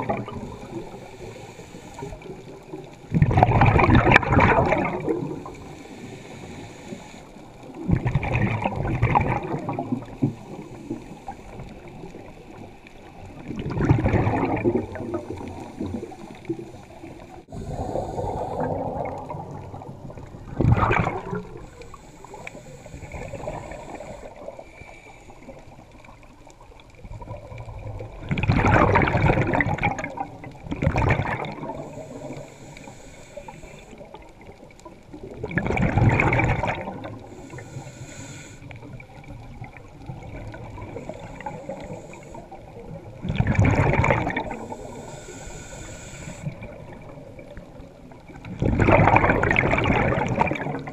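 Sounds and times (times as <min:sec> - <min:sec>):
scuba exhaust bubbles gushing: 0:00.0 - 0:50.9
underwater ambience: 0:00.0 - 0:50.9.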